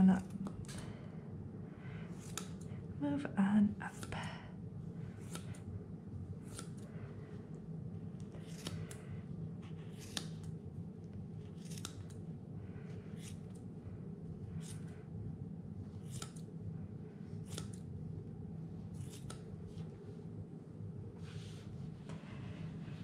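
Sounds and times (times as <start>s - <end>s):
steady low hum: 0.0s - 23.0s
scissors snipping wool: 2.1s - 2.7s, 3.9s - 4.2s, 5.1s - 5.6s, 6.4s - 6.9s, 8.2s - 9.0s, 11.4s - 12.2s, 13.1s - 13.6s, 14.5s - 15.0s, 16.0s - 16.5s, 17.4s - 17.9s, 18.9s - 19.9s.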